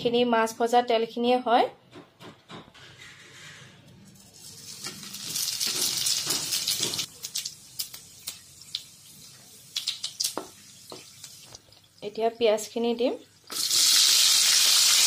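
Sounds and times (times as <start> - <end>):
spices sizzling in hot oil: 4.2 - 12.1, 13.3 - 15.0.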